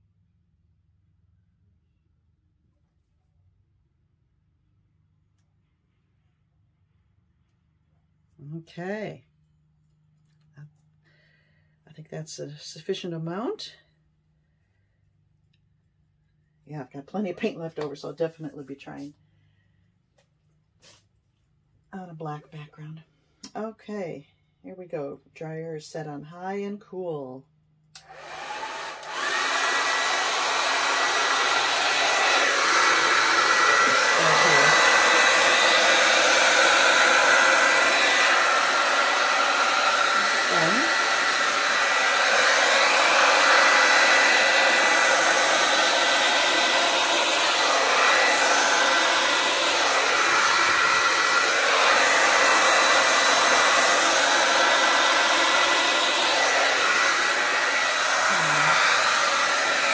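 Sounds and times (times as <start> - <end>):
hair dryer running: 28.0 - 59.9.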